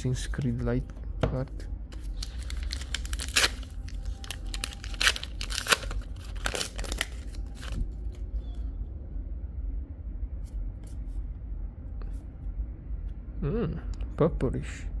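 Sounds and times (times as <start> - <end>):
low steady hum: 0.0 - 15.0
wrapper tearing and crinkling: 2.0 - 8.2.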